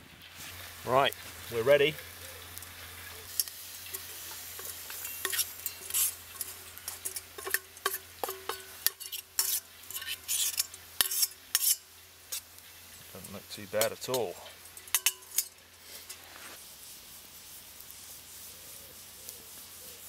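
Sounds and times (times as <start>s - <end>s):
low steady hiss: 0.0s - 20.0s
metal spoon scraping saucepan: 3.3s - 12.4s, 13.8s - 16.3s.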